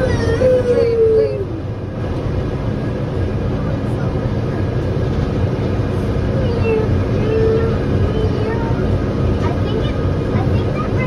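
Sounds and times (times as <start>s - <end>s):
transit pod rumble and hum: 0.0s - 11.0s.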